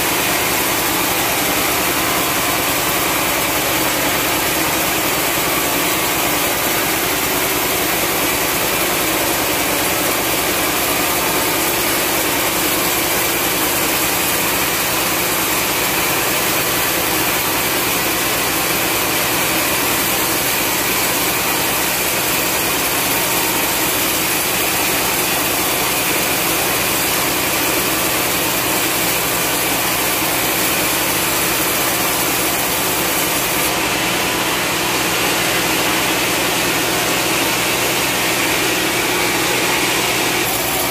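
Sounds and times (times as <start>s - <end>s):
band saw ripping through log: 18.8s - 40.9s.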